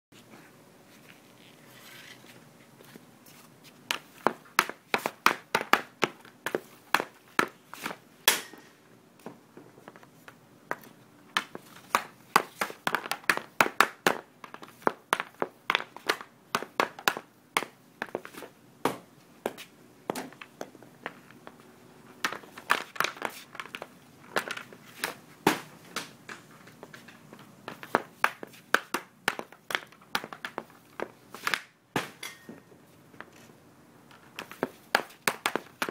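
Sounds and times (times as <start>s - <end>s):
hockey stick clicking on puck: 11.4s - 17.7s, 34.1s - 35.9s.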